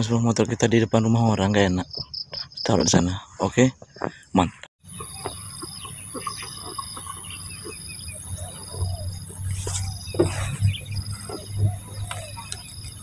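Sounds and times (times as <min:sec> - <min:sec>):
soft bird calls: 0:00.0 - 0:13.0
low uneven rumble: 0:05.0 - 0:13.0.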